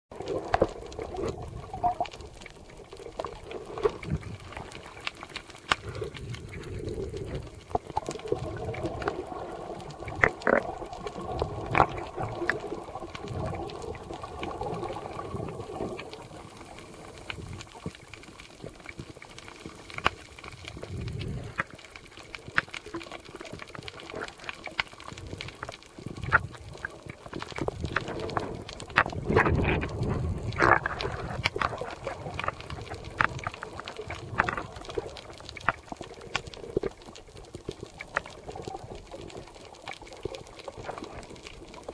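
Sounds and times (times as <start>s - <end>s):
underwater clicks and knocks: 9.8s - 16.1s, 22.4s - 41.9s.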